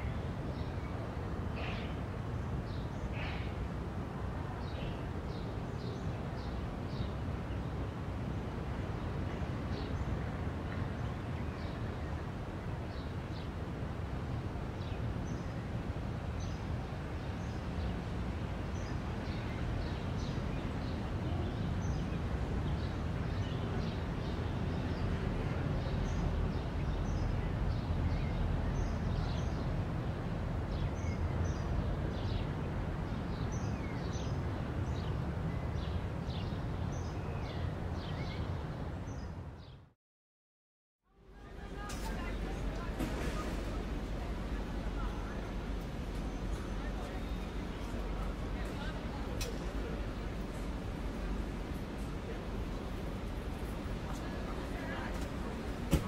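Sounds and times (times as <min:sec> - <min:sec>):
low rumble of background noise: 0:00.0 - 0:40.0, 0:41.0 - 0:56.0
birds chirping: 0:41.4 - 0:56.0.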